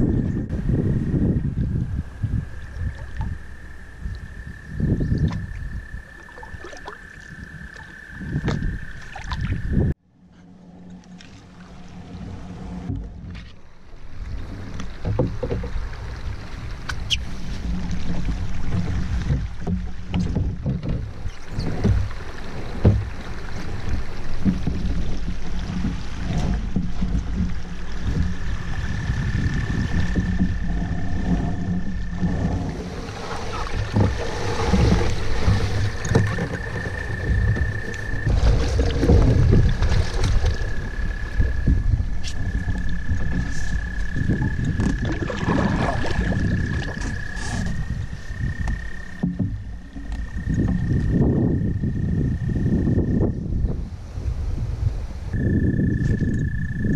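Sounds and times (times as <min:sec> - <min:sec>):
low rumble: 0:07.5 - 0:56.9
knocks and scrapes on canoe: 0:10.2 - 0:51.8.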